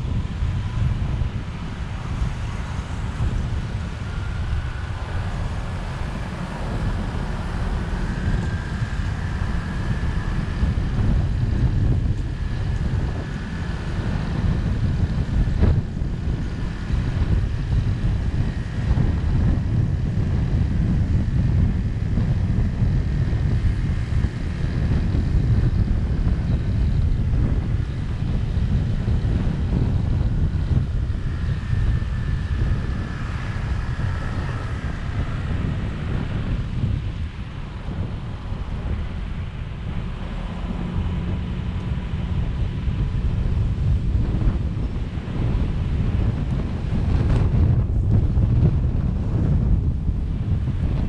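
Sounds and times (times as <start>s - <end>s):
passing traffic: 0.0s - 51.0s
road noise: 0.0s - 51.0s
wind rumbling on microphone: 0.0s - 51.0s.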